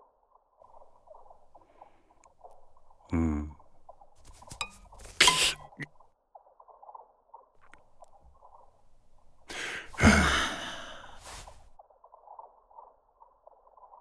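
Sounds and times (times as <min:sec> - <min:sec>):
person sighing: 0:03.1 - 0:03.6, 0:09.5 - 0:11.6.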